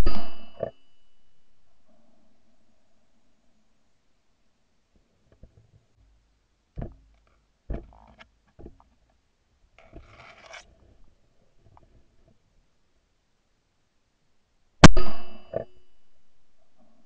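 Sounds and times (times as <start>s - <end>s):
microphone handling knocks: 6.8s - 7.1s, 7.7s - 8.9s
rustling scrape: 9.8s - 12.2s.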